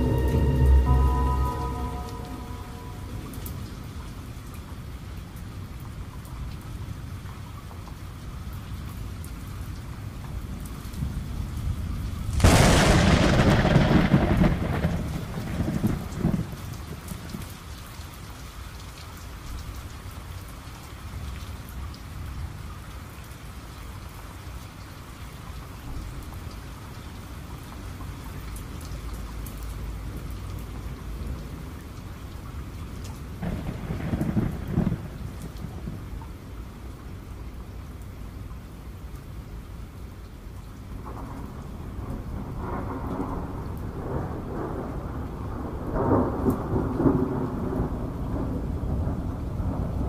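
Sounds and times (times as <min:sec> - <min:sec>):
thunderclap rumbling: 0:00.0 - 0:04.2, 0:11.8 - 0:17.4, 0:33.4 - 0:36.2, 0:41.0 - 0:50.0
steady rain: 0:00.0 - 0:50.0.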